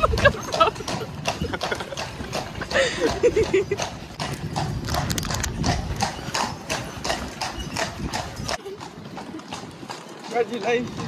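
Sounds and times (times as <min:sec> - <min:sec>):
horse hooves clip-clopping on pavement: 0:00.0 - 0:11.0.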